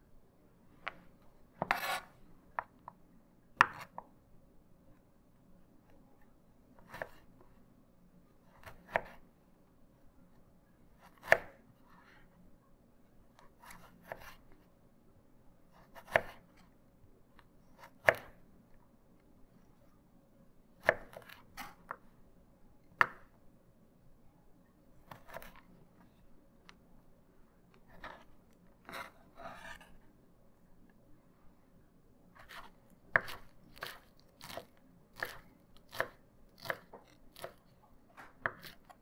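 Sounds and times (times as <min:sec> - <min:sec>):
knife cutting carrot on board: 0:01.6 - 0:02.7, 0:03.6 - 0:04.1, 0:06.8 - 0:07.3, 0:08.5 - 0:09.2, 0:11.0 - 0:12.0, 0:13.4 - 0:14.4, 0:15.7 - 0:16.5, 0:17.4 - 0:18.4, 0:20.8 - 0:22.0, 0:25.0 - 0:25.7, 0:27.7 - 0:30.0, 0:32.4 - 0:37.6, 0:38.2 - 0:39.0.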